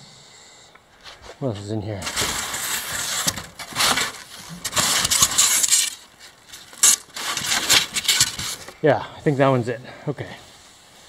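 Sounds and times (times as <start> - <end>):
styrofoam scraping together: 2.0 - 8.8.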